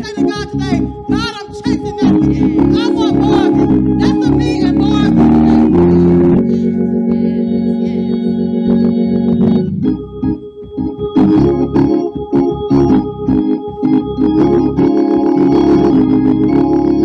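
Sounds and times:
gospel praise song: 0.0s - 9.7s
organ chords: 0.0s - 17.0s.

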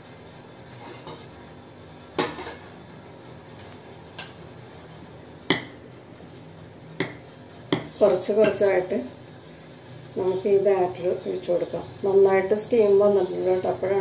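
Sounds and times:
steady low hiss: 0.0s - 14.0s.

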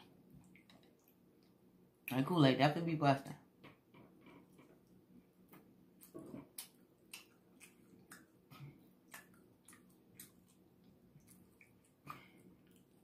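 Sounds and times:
low room hum: 0.0s - 13.0s
chewing with wet mouth clicks: 6.0s - 13.0s.

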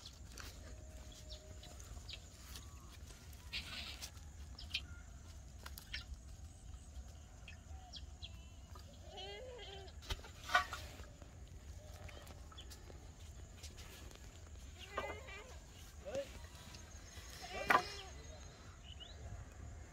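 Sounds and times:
goat bleating: 9.0s - 10.0s, 14.7s - 15.7s.

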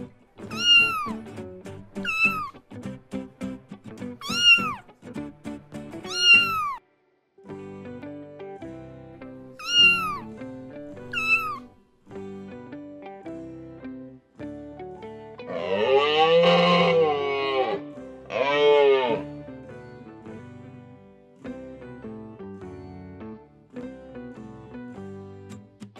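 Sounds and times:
plucked background music: 0.0s - 6.8s, 7.4s - 25.9s
cat meowing: 0.4s - 1.2s, 2.0s - 2.6s, 4.2s - 4.9s, 6.0s - 6.8s, 9.6s - 10.4s, 11.0s - 11.7s.

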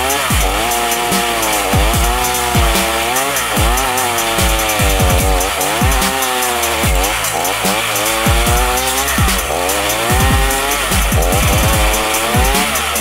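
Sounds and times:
chainsaw engine grinding stump: 0.0s - 13.0s.

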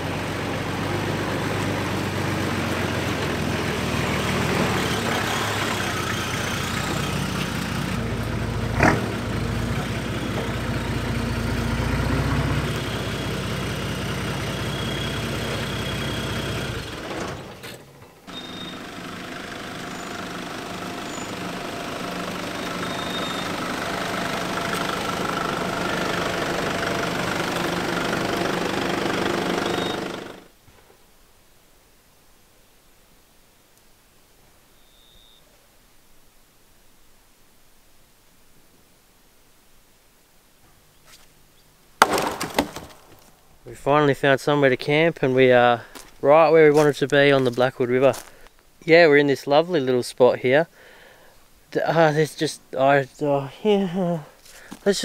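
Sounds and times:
vehicle engines running: 0.0s - 30.6s
sharp knock: 42.0s - 43.0s.

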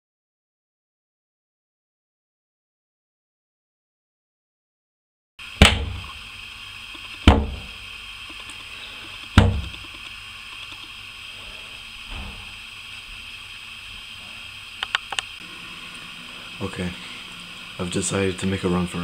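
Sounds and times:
steady hiss: 5.4s - 19.0s
heavy thumps: 5.6s - 6.1s, 7.2s - 7.8s, 9.3s - 9.9s.

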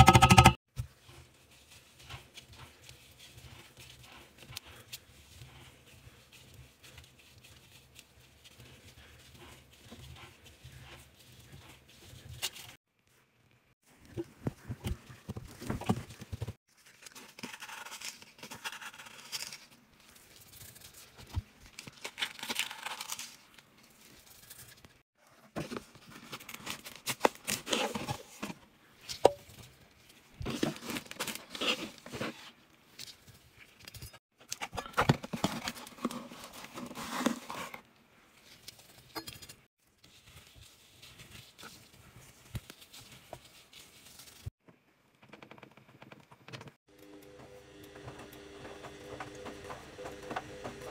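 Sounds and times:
gloved hand rubbing powder: 0.0s - 13.3s, 40.0s - 44.6s.

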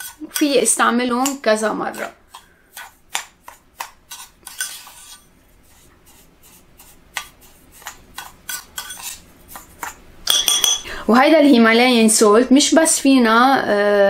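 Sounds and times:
spoon scooping and scraping: 0.0s - 11.7s.

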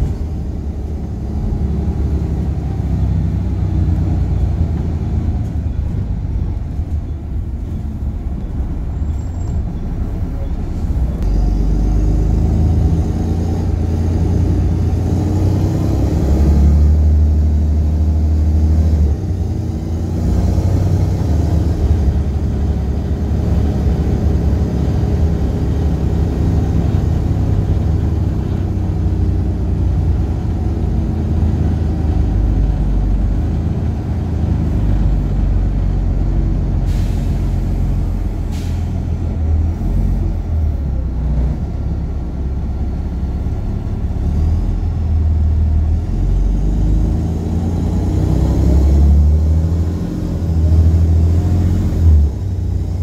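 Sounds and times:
bus diesel engine rumbling: 0.0s - 53.0s
air brake hisses: 36.8s - 39.1s.

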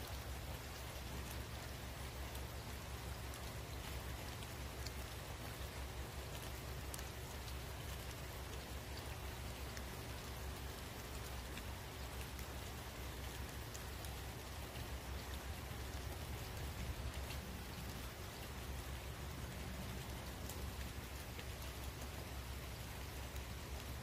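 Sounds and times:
faint ticks: 0.0s - 18.5s.

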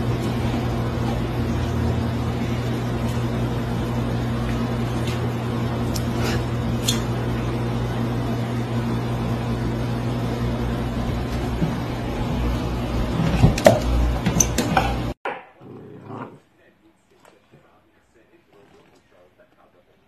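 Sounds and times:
aquarium pump hum: 0.0s - 15.2s.

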